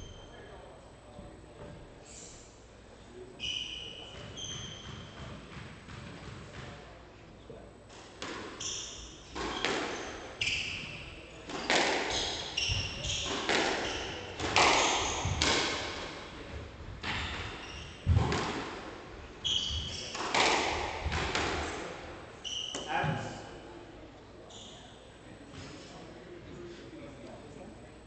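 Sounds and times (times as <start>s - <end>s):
shoe squeaks on wooden floor: 3.4s - 5.3s, 19.4s - 20.2s, 22.4s - 23.4s, 24.5s - 25.0s
squash ball cracking off rackets: 20.1s - 21.6s.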